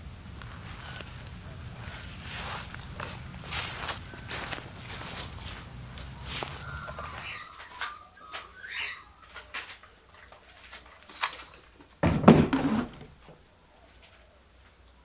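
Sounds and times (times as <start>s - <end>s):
clattering rustle with dull knocks: 9.3s - 13.4s.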